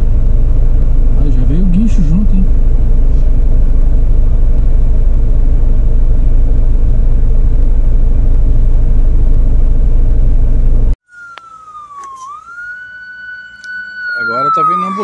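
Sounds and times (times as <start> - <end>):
truck rumbling: 0.0 - 14.5
ambulance siren: 11.0 - 15.0.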